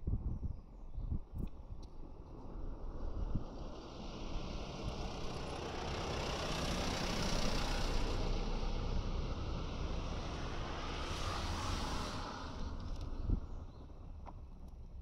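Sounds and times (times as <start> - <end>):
vehicle passing by: 2.7 - 13.7.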